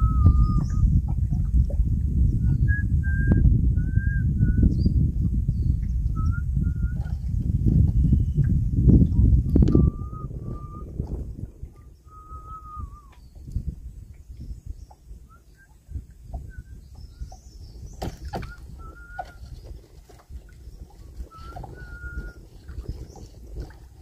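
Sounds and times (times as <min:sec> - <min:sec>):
low rumble: 0:00.0 - 0:18.0.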